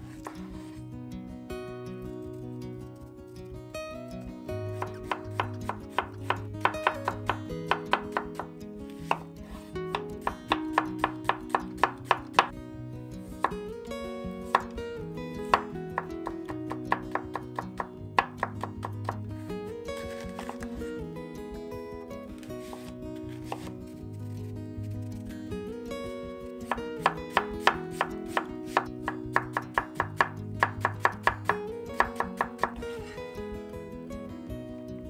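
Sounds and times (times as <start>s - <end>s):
light guitar music: 0.0s - 35.0s
knife chopping on cutting board: 4.8s - 9.3s, 10.0s - 12.5s, 15.5s - 19.2s, 23.5s - 23.7s, 27.0s - 32.8s.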